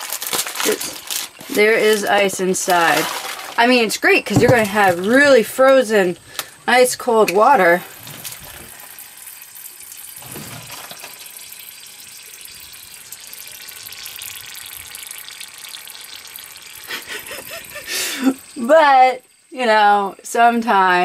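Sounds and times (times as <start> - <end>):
ice slush sloshing in jug: 0.1 - 5.5.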